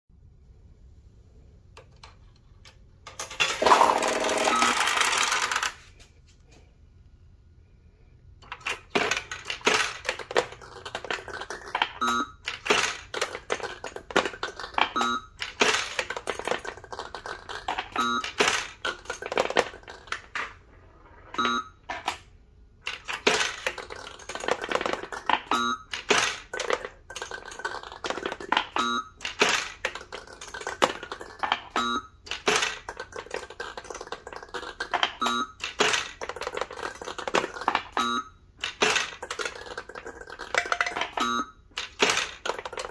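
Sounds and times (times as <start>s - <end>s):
balls clattering through machine: 1.8s - 5.9s, 8.4s - 42.9s
brief tone: 4.3s - 4.9s, 12.0s - 12.4s, 15.0s - 15.4s, 21.3s - 21.9s, 31.8s - 32.2s, 38.0s - 38.4s, 41.2s - 41.6s.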